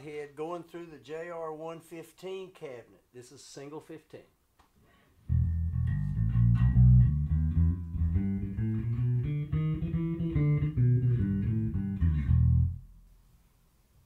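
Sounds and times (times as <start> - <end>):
plucked electric bass notes: 5.3 - 13.1.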